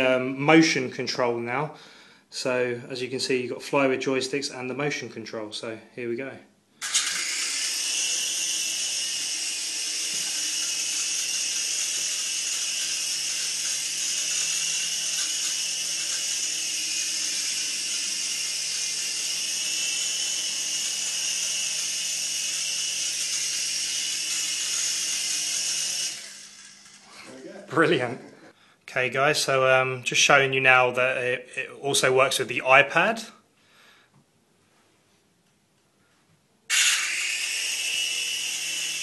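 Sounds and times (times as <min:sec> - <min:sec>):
toy helicopter motor whine: 0:06.8 - 0:27.3, 0:36.7 - 0:39.0.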